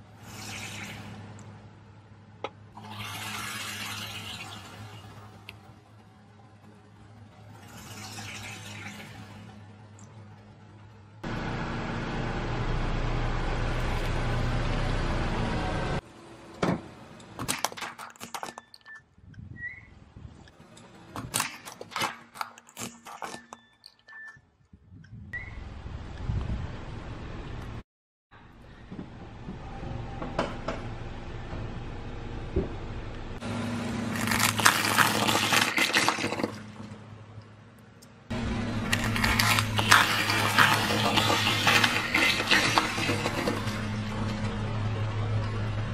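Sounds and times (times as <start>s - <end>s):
car engine low hum: 9.6s - 17.2s, 37.1s - 39.9s, 43.3s - 45.9s
sharp cracks and clicks: 17.2s - 19.0s, 20.5s - 24.3s
low hum: 36.5s - 45.9s
tyre rolling on wet concrete: 38.9s - 44.4s.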